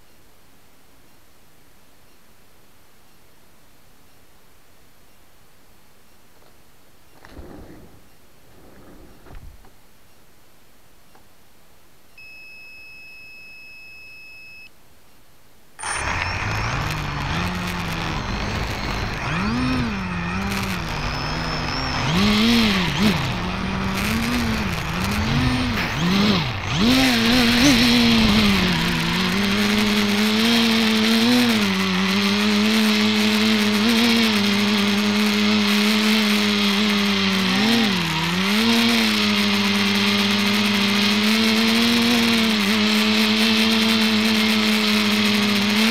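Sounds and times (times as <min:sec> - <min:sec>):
drone propellers whirring: 0:07.2 - 0:09.7, 0:15.8 - 0:45.9
steady high beep: 0:12.2 - 0:14.7.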